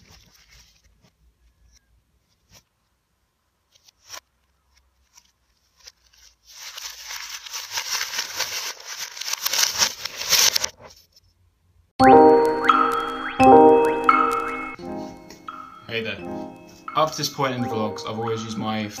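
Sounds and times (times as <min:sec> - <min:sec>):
paper crumpling and tearing: 0:00.0 - 0:01.1, 0:05.0 - 0:11.1.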